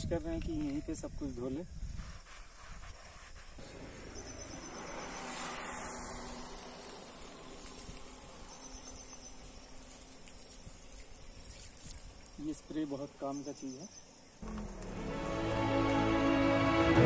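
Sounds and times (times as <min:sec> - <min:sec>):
sprayer water jet splattering: 0:04.7 - 0:12.4.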